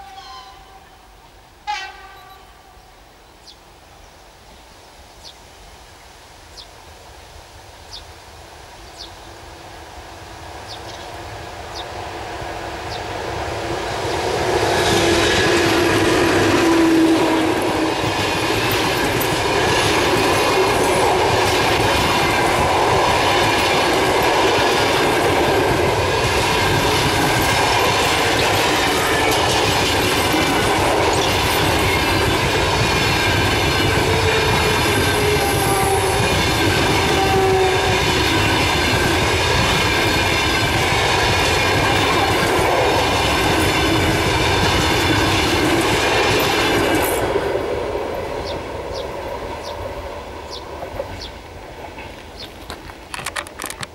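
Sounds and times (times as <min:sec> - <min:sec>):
electric locomotive passing: 0:00.0 - 0:03.5, 0:08.6 - 0:53.9
train wheels clickety-clack: 0:11.8 - 0:53.9.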